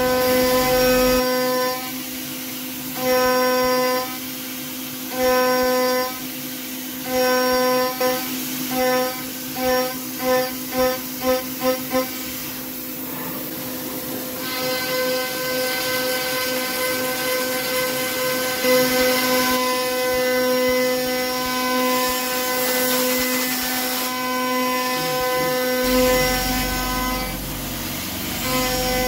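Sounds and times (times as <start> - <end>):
cnc spindle whine while milling: 0.0 - 2.1, 13.5 - 29.0.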